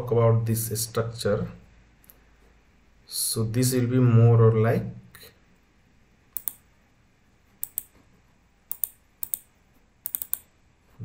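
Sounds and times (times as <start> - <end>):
computer key clicks: 6.4 - 6.6, 7.6 - 7.9, 8.7 - 10.5.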